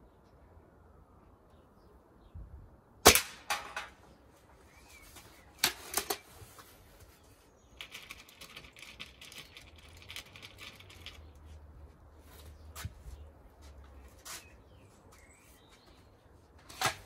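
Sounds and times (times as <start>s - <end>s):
light clicking and rattling: 7.8s - 11.6s.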